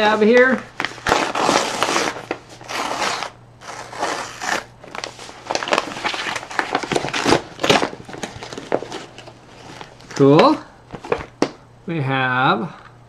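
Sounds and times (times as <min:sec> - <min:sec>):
plastic bag crinkling: 0:00.2 - 0:11.3
plastic tear strip ripping: 0:00.9 - 0:04.7.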